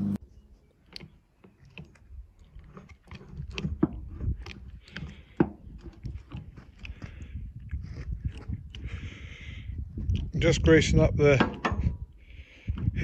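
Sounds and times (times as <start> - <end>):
grease gun lever clicks and creaks: 0.8 - 8.8.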